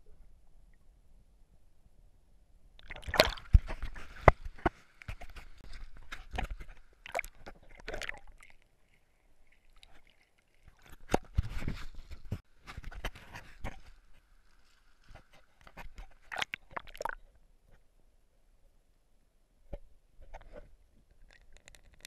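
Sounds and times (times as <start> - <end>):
water sloshing and splashing: 2.8 - 17.3.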